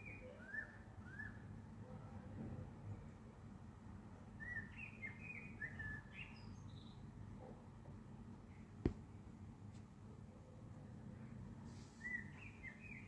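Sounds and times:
bird chirping: 4.4s - 7.1s, 12.0s - 13.0s.

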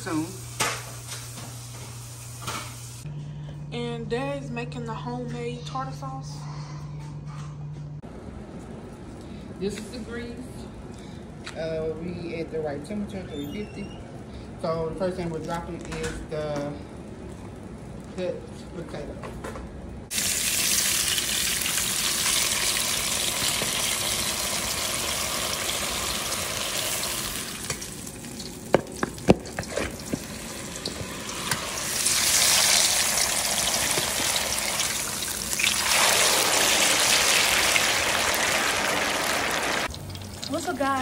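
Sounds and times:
oil sizzling and bubbling: 0.0s - 3.1s, 20.1s - 41.0s.

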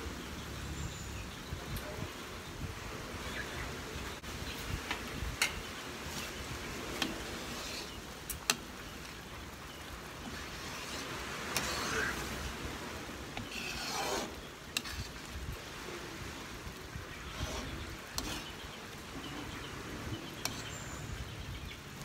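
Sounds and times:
utensil stirring thick mixture: 6.1s - 15.4s, 17.1s - 21.4s.

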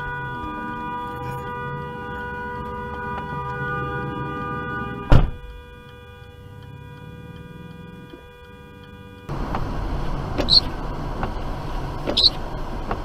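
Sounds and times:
car road noise: 0.0s - 13.0s
sharp thump: 5.1s - 5.6s
light ticking: 5.4s - 9.7s.

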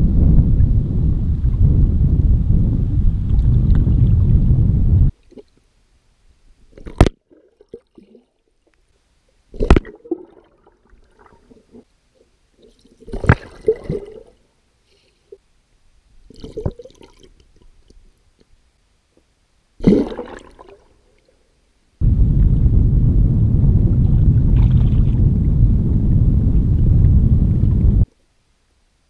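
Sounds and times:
wind buffeting microphone: 0.0s - 5.1s, 22.0s - 28.1s
muffled underwater splashes: 19.8s - 20.9s, 22.1s - 28.0s.

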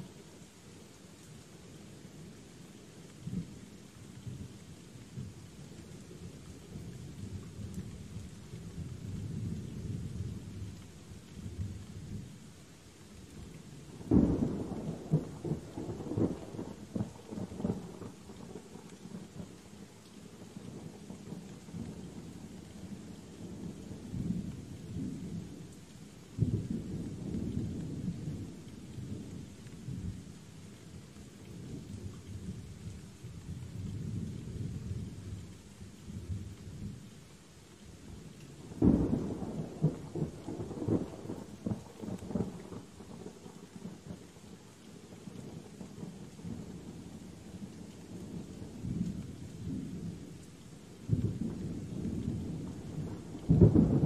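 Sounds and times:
steady rain: 0.0s - 54.0s
rumbling thunder: 14.0s - 18.7s, 38.7s - 43.9s, 51.1s - 54.0s
loud thunderclap: 53.1s - 54.0s.

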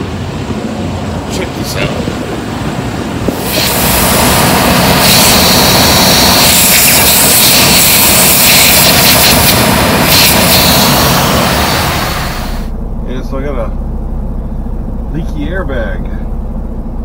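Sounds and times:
truck engine running: 0.0s - 17.0s
compressed air hissing: 3.3s - 12.7s.

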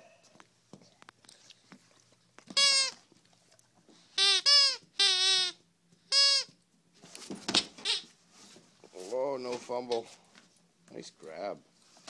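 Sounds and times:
squeaky dog toy squeaks: 2.5s - 3.0s, 4.2s - 6.6s, 7.8s - 8.1s.

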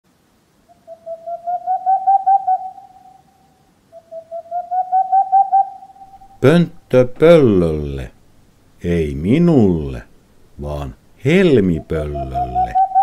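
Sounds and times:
owl rapid hooting: 0.7s - 6.9s, 10.6s - 13.0s.

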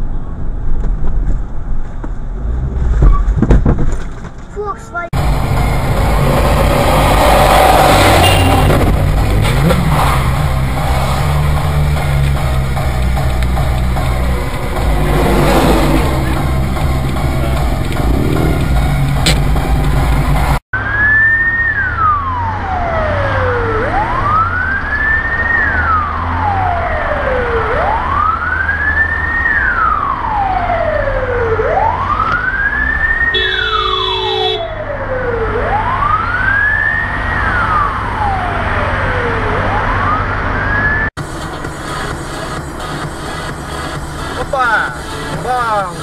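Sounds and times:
emergency siren wailing: 5.2s - 9.0s, 20.8s - 41.1s
low engine rumble: 5.2s - 20.6s
horn-like tone: 8.0s - 8.9s, 33.3s - 34.8s.

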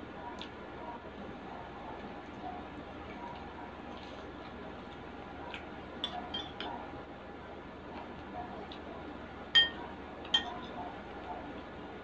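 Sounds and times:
eating sounds: 0.2s - 7.0s
metal spoon clinking on ceramic bowl: 6.0s - 6.7s, 9.6s - 10.7s.

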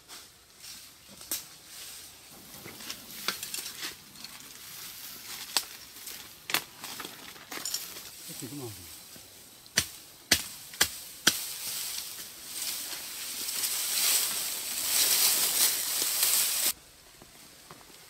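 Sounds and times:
bamboo leaves rustling and swishing: 0.0s - 18.0s
chopping into bamboo: 9.7s - 11.5s.

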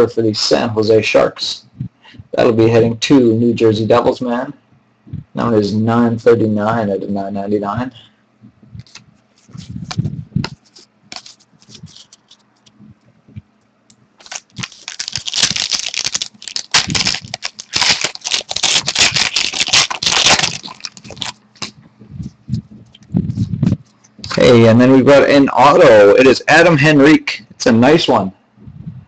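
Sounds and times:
cards rustling and scraping: 8.8s - 12.8s, 14.2s - 24.4s.

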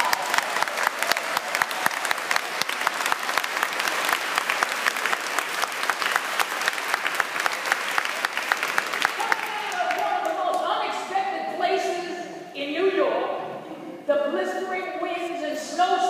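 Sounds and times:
congregation applauding: 0.0s - 10.6s.

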